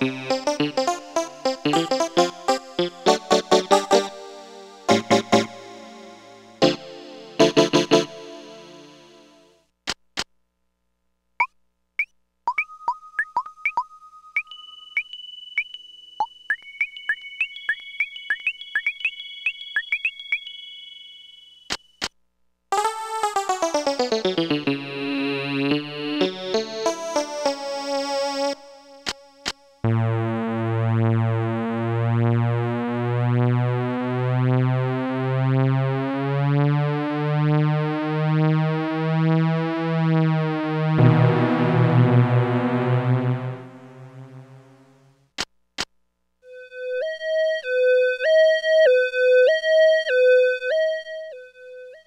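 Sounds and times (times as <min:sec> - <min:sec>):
keyboard notes sliding downward: 0:00.0 - 0:09.4, 0:22.8 - 0:28.7, 0:33.5 - 0:45.0
keyboard long held low note: 0:40.2 - 0:45.1.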